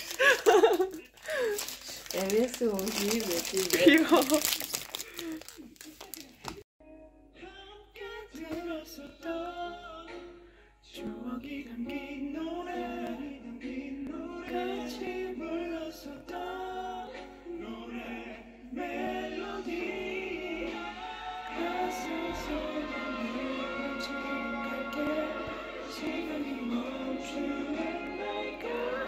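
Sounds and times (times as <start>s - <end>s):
music with singing voices: 6.8s - 29.0s.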